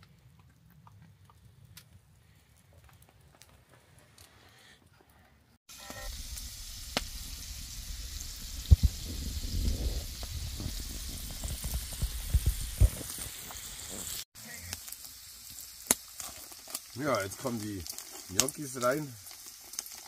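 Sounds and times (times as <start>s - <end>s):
food sizzling in a pan: 5.7s - 20.0s.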